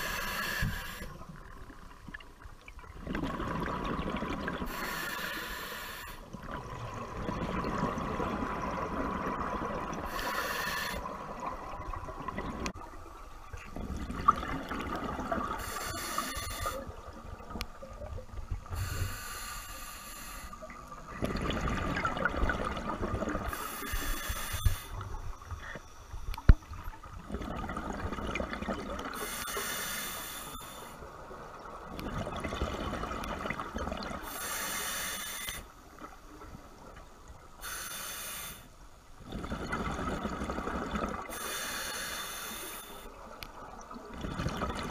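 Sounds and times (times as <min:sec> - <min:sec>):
regulator inhaling hiss: 0:00.0 - 0:01.2, 0:04.7 - 0:06.2, 0:10.1 - 0:11.1, 0:15.6 - 0:16.9, 0:18.7 - 0:20.7, 0:23.5 - 0:26.4, 0:29.2 - 0:31.0, 0:34.2 - 0:35.7, 0:37.6 - 0:38.8, 0:41.3 - 0:43.2
exhaled bubbles underwater: 0:00.0 - 0:04.8, 0:06.3 - 0:19.0, 0:20.6 - 0:24.0, 0:26.4 - 0:29.3, 0:31.3 - 0:34.3, 0:39.2 - 0:41.4, 0:43.2 - 0:44.9.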